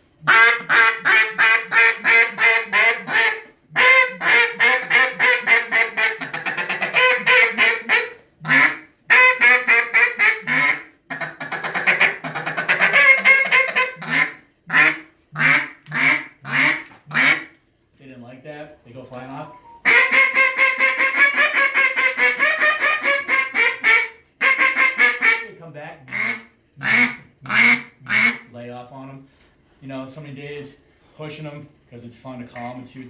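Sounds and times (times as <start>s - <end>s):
duck call quacks: 0.2s - 17.5s, 19.8s - 25.5s, 26.1s - 28.4s
duck call feeding chuckle: 0.3s - 17.4s, 19.8s - 25.4s.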